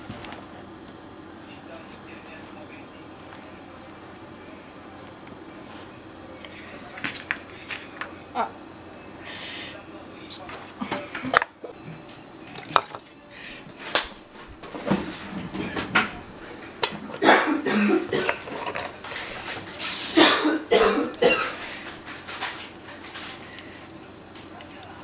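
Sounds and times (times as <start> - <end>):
clatter and rustling: 13.8 - 17.2, 18.2 - 20.1, 21.6 - 24.6.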